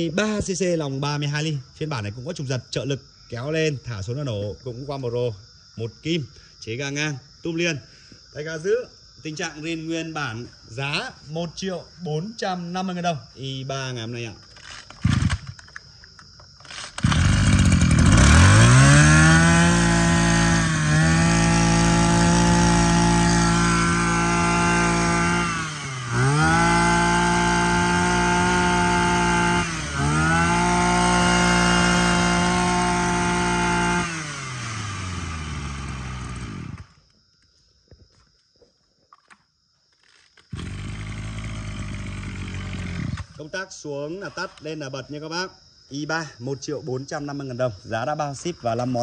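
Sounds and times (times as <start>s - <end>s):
brush cutter engine revving: 14.6s - 15.6s, 16.6s - 37.0s, 40.4s - 43.5s.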